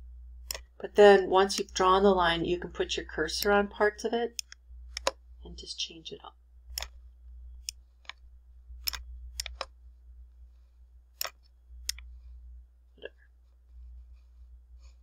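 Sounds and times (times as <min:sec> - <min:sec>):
low steady hum: 0:00.0 - 0:15.0
computer mouse clicking: 0:00.4 - 0:00.7, 0:04.4 - 0:05.2, 0:06.7 - 0:07.0, 0:07.6 - 0:08.2, 0:08.8 - 0:09.7, 0:11.2 - 0:12.1.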